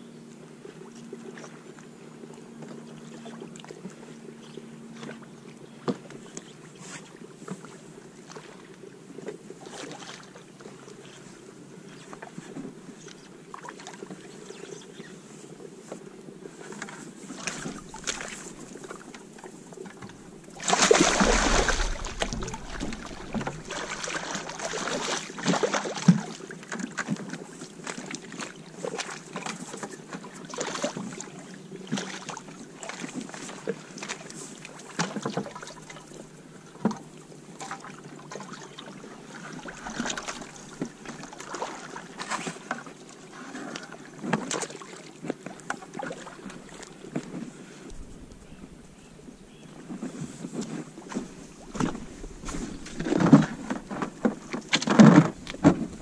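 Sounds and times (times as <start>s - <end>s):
wind rushing on microphone: 21.0s - 23.9s.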